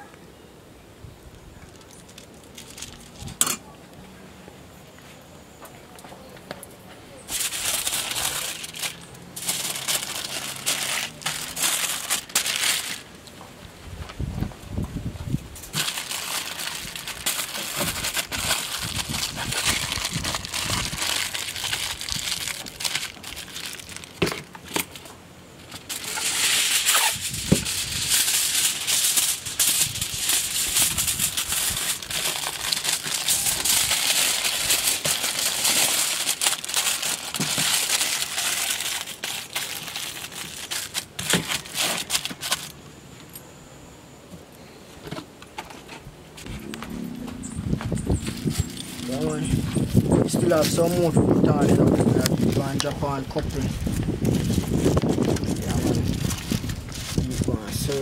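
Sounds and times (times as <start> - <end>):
aluminium foil crinkling: 1.6 - 3.6, 7.2 - 13.3, 15.5 - 42.8, 48.1 - 58.0.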